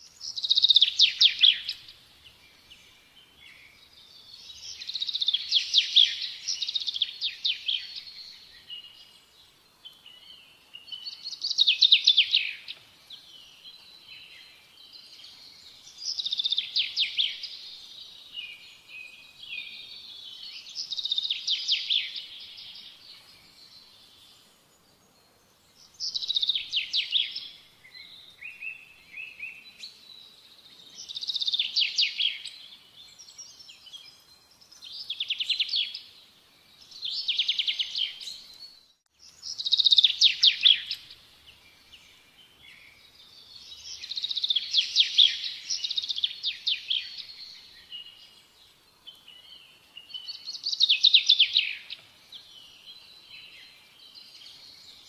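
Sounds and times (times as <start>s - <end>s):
songbird trilling: 39.4s - 41.2s.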